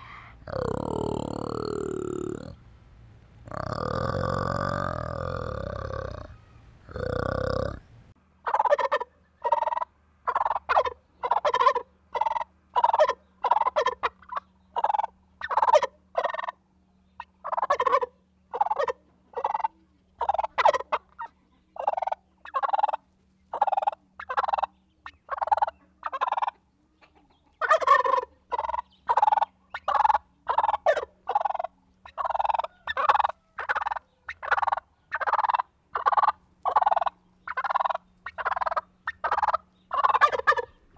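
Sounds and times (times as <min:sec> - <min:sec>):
turkey gobbling: 0:08.4 - 0:16.6, 0:17.2 - 0:40.9.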